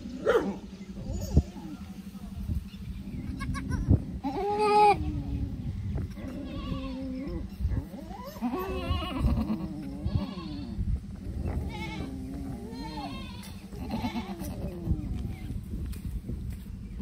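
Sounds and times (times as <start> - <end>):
goat bleating: 3.3 - 5.4, 6.1 - 7.4, 8.1 - 10.8, 11.4 - 15.4.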